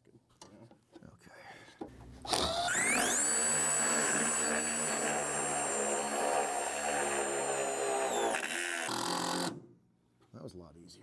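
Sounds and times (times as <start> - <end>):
cordless drill whining: 2.2 - 9.6.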